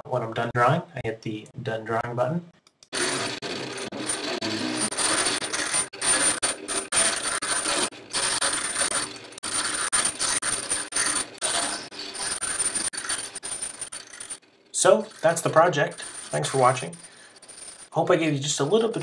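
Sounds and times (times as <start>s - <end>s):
stepper motors whirring and whining: 2.9s - 17.9s.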